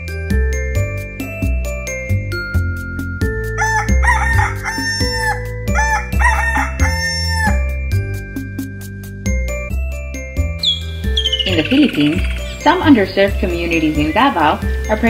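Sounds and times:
rooster crowing: 0:03.6 - 0:07.6.

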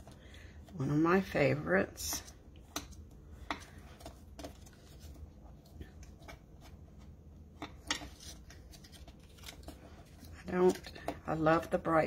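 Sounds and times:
paper rustles and crackles: 0:08.0 - 0:11.1.

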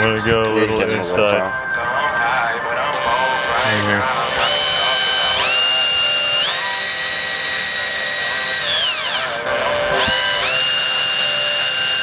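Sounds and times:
electric drill whining: 0:02.8 - 0:12.0.

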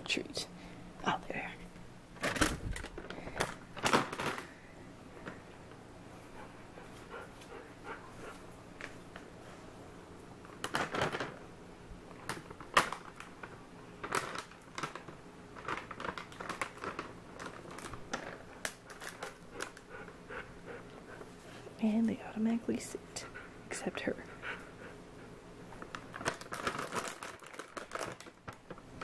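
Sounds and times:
dog claws clicking on tile floor: 0:10.4 - 0:11.4, 0:12.1 - 0:19.9, 0:25.7 - 0:28.8.

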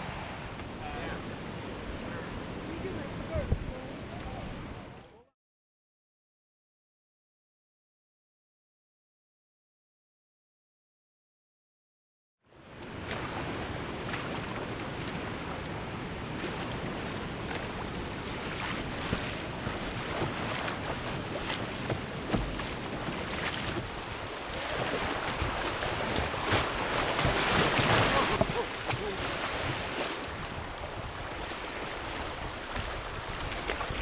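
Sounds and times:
rushing river water: 0:00.0 - 0:05.0, 0:12.5 - 0:34.0
wind on microphone: 0:00.0 - 0:05.1, 0:12.8 - 0:34.0
short splashes: 0:12.9 - 0:15.7, 0:16.3 - 0:34.0.

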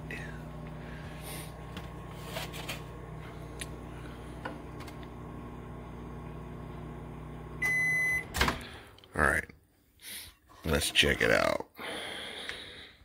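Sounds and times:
microwave oven humming: 0:00.0 - 0:08.9
long high beep: 0:07.6 - 0:08.3.

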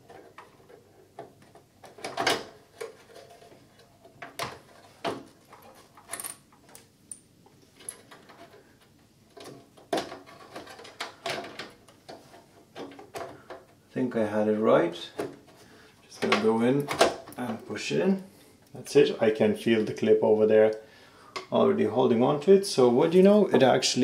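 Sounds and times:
hard parts clicking and knocking: 0:00.0 - 0:13.8.

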